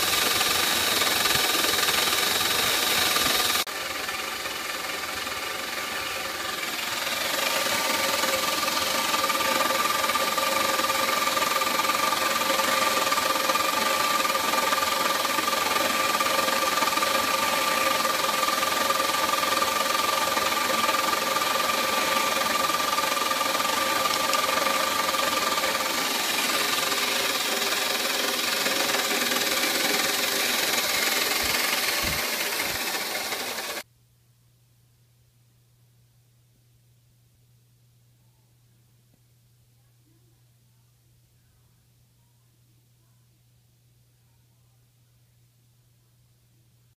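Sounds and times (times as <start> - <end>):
milling machine cutting plastic: 0.0 - 33.8
high whine: 16.7 - 33.8.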